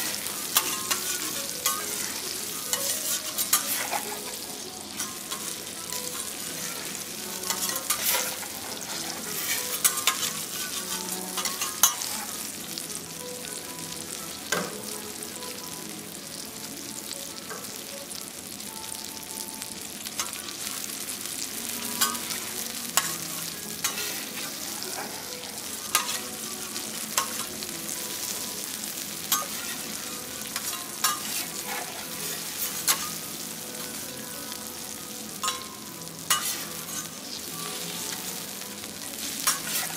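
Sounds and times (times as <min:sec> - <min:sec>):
food sizzling on griddle: 0:00.0 - 0:39.9
metal spatulas clicking and scraping: 0:00.1 - 0:04.4, 0:05.0 - 0:12.3, 0:23.0 - 0:25.0, 0:25.6 - 0:27.6, 0:29.2 - 0:33.3, 0:36.3 - 0:37.2, 0:39.4 - 0:39.9.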